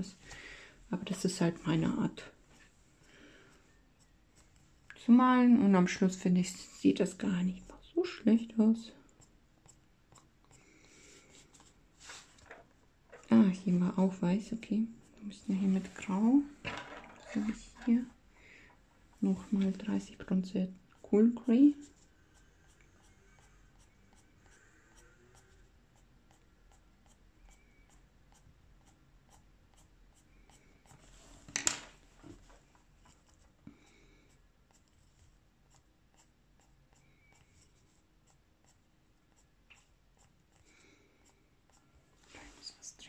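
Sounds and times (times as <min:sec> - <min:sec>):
pencil scratching on paper: 0:09.2 - 0:10.6, 0:21.0 - 0:31.4, 0:33.0 - 0:41.9.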